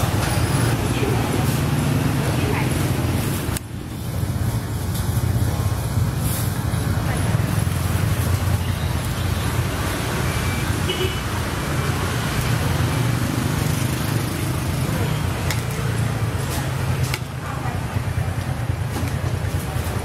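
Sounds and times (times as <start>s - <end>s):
street traffic rumble: 0.0s - 20.0s.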